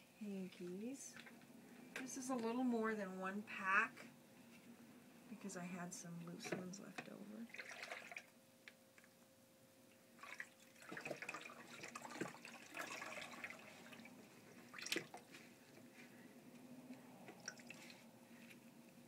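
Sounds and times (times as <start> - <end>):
water splashing and dripping: 7.5 - 8.3, 10.2 - 14.1, 14.7 - 15.3, 17.4 - 18.0.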